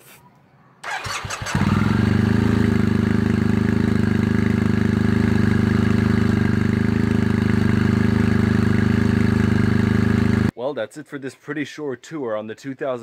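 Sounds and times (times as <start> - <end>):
motorcycle engine idling: 0.8 - 10.5.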